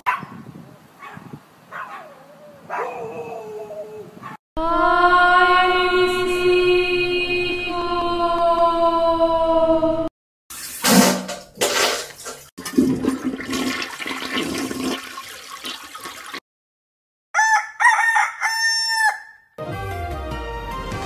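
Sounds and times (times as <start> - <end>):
toilet flushing: 10.5 - 16.4
rooster crowing: 17.4 - 19.5.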